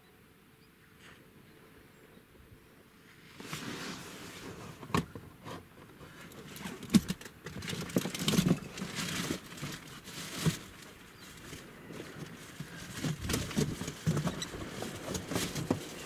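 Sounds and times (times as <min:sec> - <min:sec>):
close rustling and crinkling: 0:03.1 - 0:16.0
handling clicks and knocks: 0:04.8 - 0:16.0.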